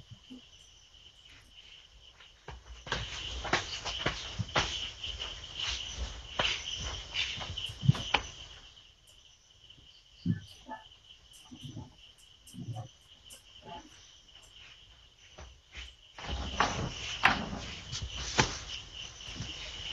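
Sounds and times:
crickets chirping: 0.0s - 19.9s
rustling: 14.5s - 19.9s.

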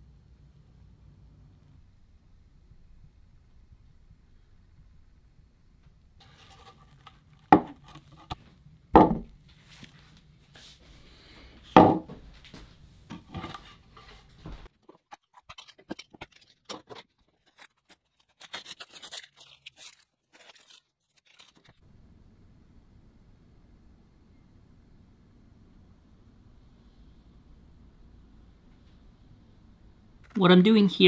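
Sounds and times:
sharp knocks: 9.0s - 9.3s, 11.8s - 12.1s
masking tape peeling: 15.3s - 21.8s.

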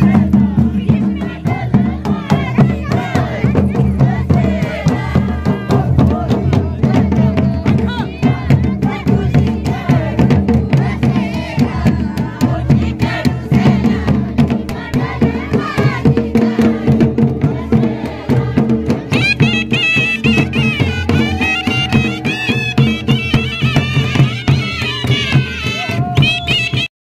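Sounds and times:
drums beating steady rhythm: 0.0s - 26.9s
high wavering wind instrument melody: 19.2s - 25.9s.

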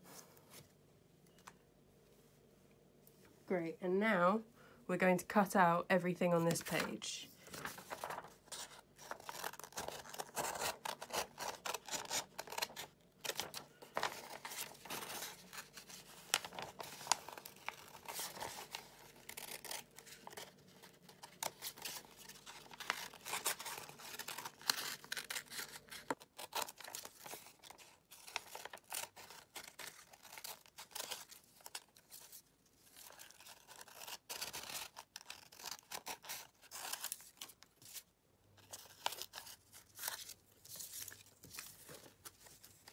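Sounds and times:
scissors snipping paper: 9.0s - 32.3s.

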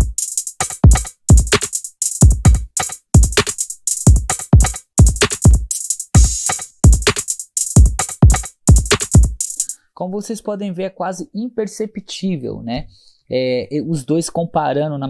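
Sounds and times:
hi-hats and snares: 0.0s - 9.8s.

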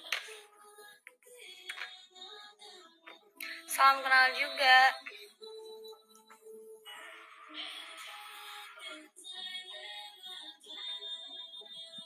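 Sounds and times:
background music with singing: 0.0s - 12.0s.

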